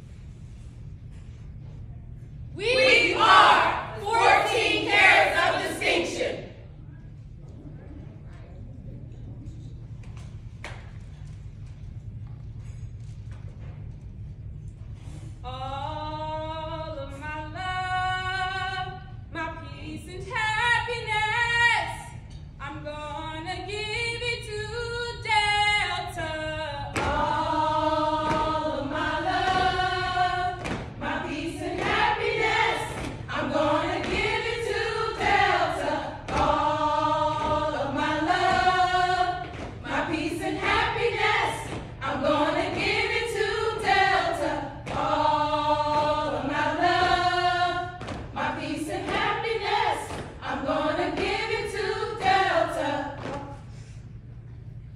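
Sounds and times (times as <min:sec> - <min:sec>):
women singing a cappella: 0:02.6 - 0:06.7, 0:15.4 - 0:54.2.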